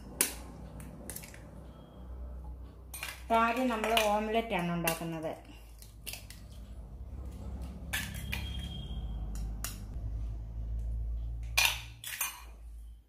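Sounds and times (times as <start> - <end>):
high ringing tone: 1.7 - 2.4, 8.1 - 9.4
steady low hum: 5.5 - 11.6.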